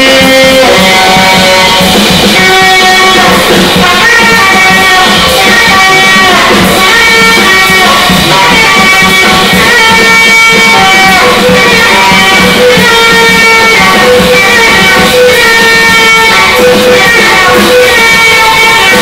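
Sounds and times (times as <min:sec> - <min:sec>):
drum kit with cymbals: 0:00.0 - 0:19.0
tenor saxophone long notes: 0:00.0 - 0:19.0.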